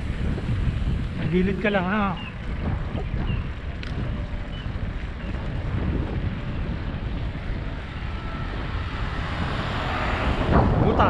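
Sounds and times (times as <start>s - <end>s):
wind noise on microphone: 0.0s - 11.0s.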